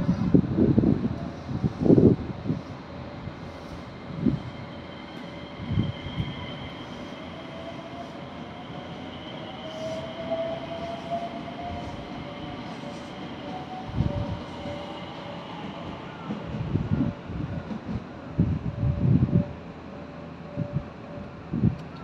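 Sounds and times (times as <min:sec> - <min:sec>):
electric train equipment humming: 0:00.3 - 0:16.8.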